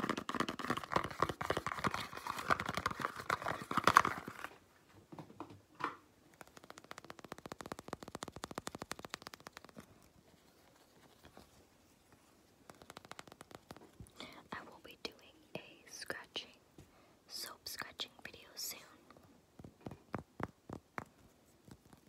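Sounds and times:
cardboard box crinkling: 0.0 - 4.5.

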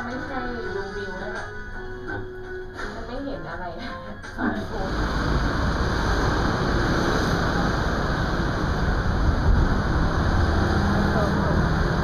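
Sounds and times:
street traffic rumble: 4.8 - 12.0.

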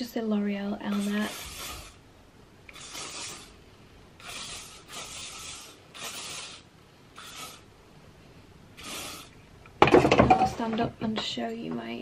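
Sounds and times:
hairspray hissing bursts: 0.9 - 2.0, 2.7 - 3.6, 4.2 - 7.7, 8.8 - 9.3.

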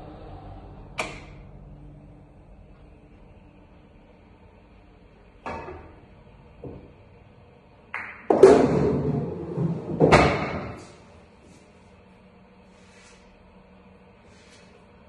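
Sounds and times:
cue striking ball: 7.9 - 10.9
billiard balls rattling and rolling: 8.0 - 11.0.

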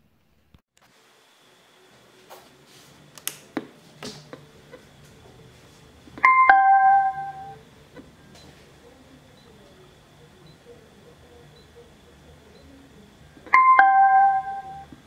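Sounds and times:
two-note falling electronic chime: 6.3 - 7.6, 13.6 - 14.9.

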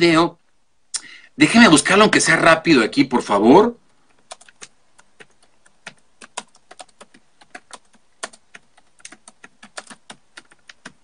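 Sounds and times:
computer keyboard typing: 4.0 - 11.0.

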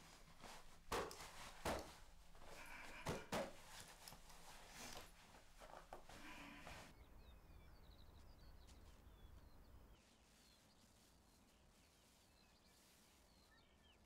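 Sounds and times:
clothing rustling: 0.0 - 6.9, 10.0 - 13.8.

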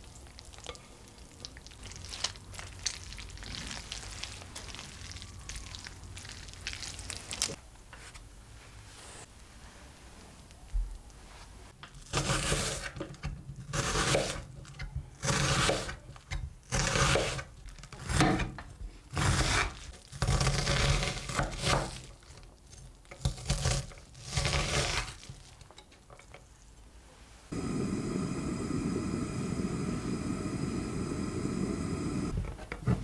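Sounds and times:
knife slicing onion on wooden board: 12.1 - 14.5, 16.7 - 22.0.

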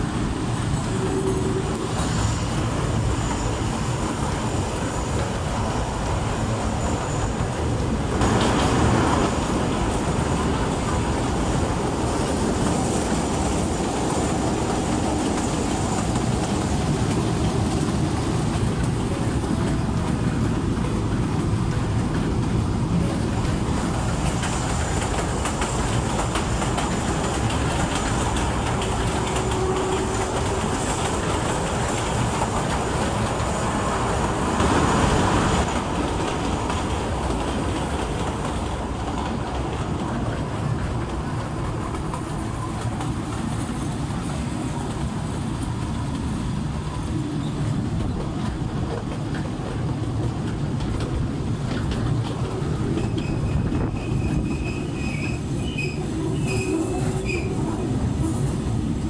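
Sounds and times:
train wheels rumbling on rails: 0.0 - 59.0
high wheel squeals: 0.5 - 8.0, 53.0 - 57.7.

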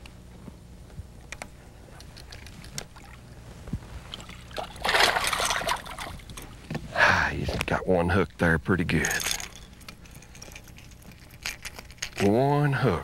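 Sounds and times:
low steady hum: 0.0 - 13.0
fish splashing at the surface: 4.1 - 6.3.

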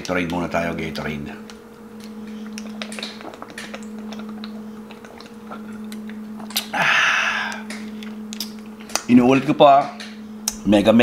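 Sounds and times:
steady low hum: 0.0 - 11.0
breathy exhale: 6.7 - 7.7.

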